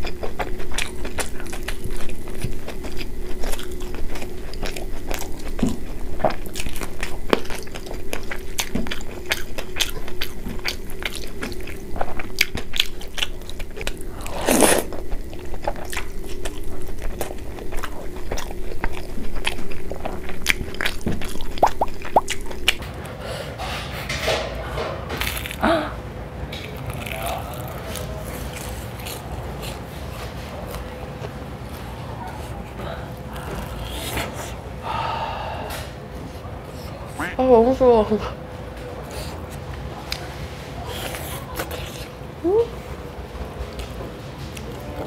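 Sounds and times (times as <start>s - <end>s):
person crunching fried food: 0.0s - 22.8s, 25.2s - 25.6s, 26.6s - 30.0s.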